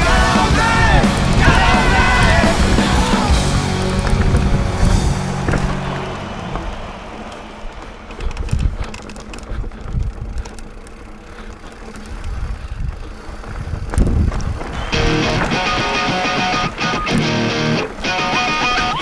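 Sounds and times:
rock music with guitars: 0.0 - 6.3, 14.8 - 19.0
knocks and rattles over bumps: 0.0 - 16.1
bike tyres rumbling on dirt: 0.0 - 19.0
wind on microphone: 12.2 - 15.8.

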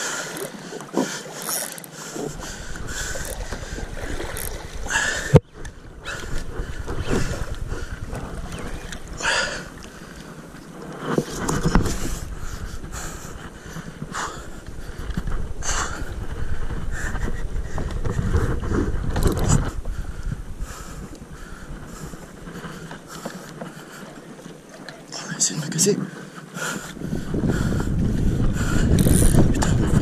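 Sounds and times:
water slapping against kayak hull: 0.0 - 15.5
wind buffeting microphone: 2.0 - 10.5, 11.2 - 24.4, 25.9 - 30.0.

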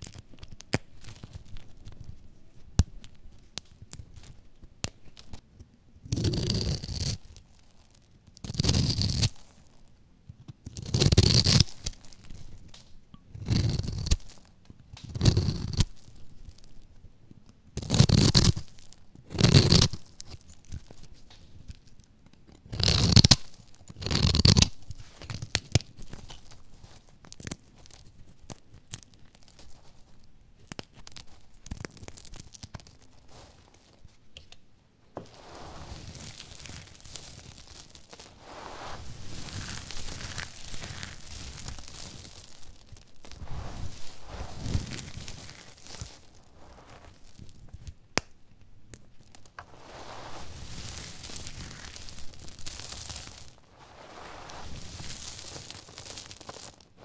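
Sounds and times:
soap crumbling crackles: 0.0 - 57.0
knife crunching through dry soap: 6.1 - 9.8, 10.4 - 16.7, 17.8 - 33.8, 35.3 - 48.4, 49.2 - 57.0
hands rustling soap pieces: 24.8 - 34.3, 35.1 - 57.0.

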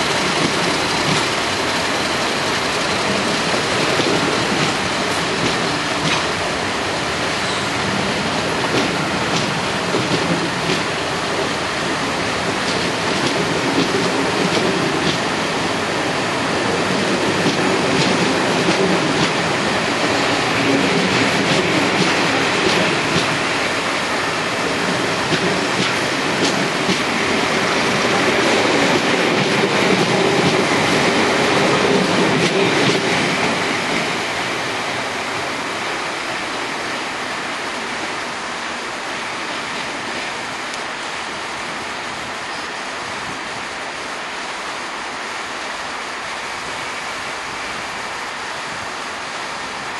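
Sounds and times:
wheels clicking over rail joints: 0.0 - 6.4, 12.4 - 15.3
railway coaches rolling past: 0.0 - 49.9.

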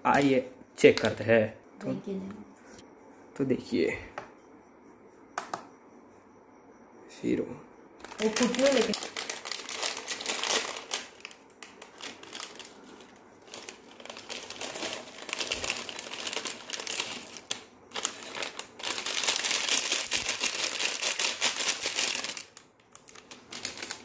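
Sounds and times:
plastic packet crinkling: 8.0 - 24.0.

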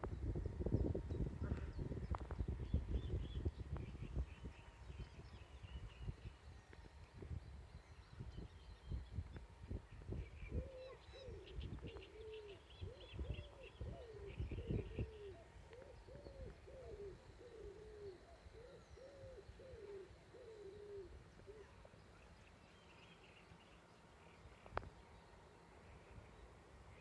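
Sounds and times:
gusty low rumble: 0.0 - 6.3.

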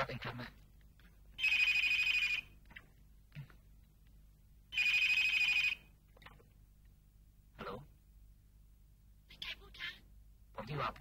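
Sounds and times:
telephone bell ringing: 1.4 - 2.5, 4.7 - 5.9.

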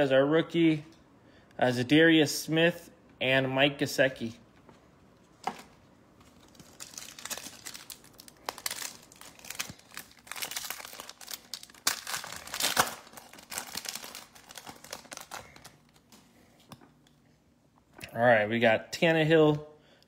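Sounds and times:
plastic wrapper tearing and crinkling: 6.3 - 16.1.

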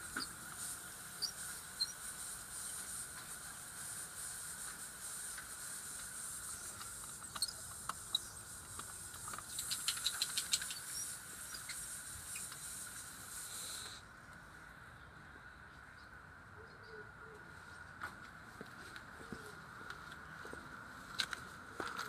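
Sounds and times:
garden hose spraying water: 0.0 - 14.0
quick clicks: 6.8 - 11.8.

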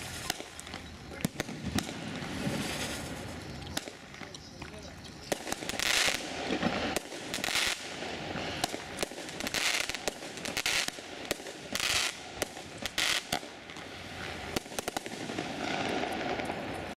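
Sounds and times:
fireworks bangs and pops: 0.0 - 16.9
hiss of rising fireworks: 0.0 - 16.9.

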